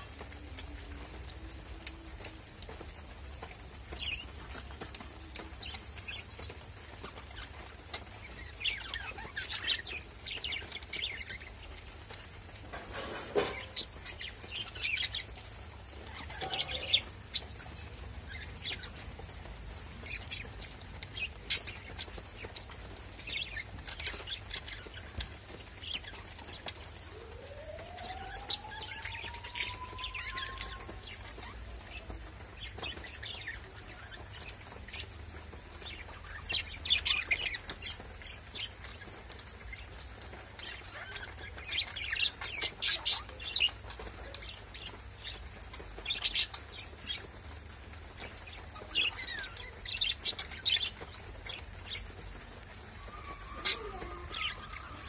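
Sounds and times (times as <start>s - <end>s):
budgerigars chirping: 16.0s - 17.6s.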